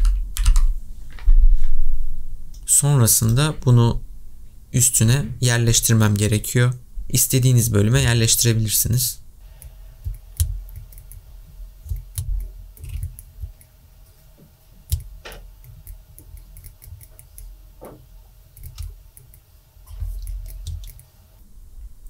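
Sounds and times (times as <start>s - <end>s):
faint low hum: 0.0s - 22.0s
computer mouse clicks: 9.5s - 11.2s, 11.9s - 13.7s, 14.9s - 17.5s, 18.6s - 19.4s, 20.0s - 21.1s.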